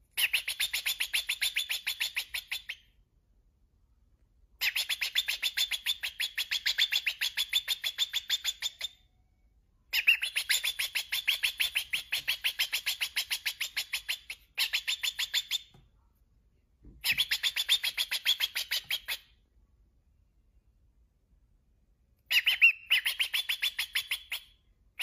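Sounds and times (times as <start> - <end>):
cockatiel chirping: 0.1 - 3.0, 4.6 - 9.1, 9.9 - 15.8, 17.0 - 19.4, 22.3 - 25.0.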